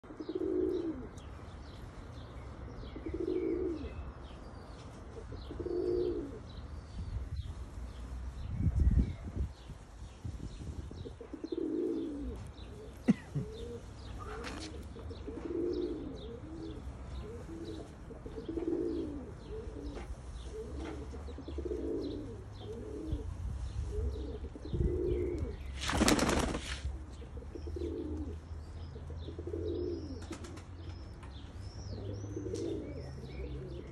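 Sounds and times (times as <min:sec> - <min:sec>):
pigeons cooing: 0:00.0 - 0:01.4, 0:02.8 - 0:04.0, 0:05.1 - 0:06.6, 0:11.0 - 0:31.2, 0:31.8 - 0:33.9
small birds chirping: 0:00.0 - 0:33.9
wings fluttering: 0:25.7 - 0:26.9.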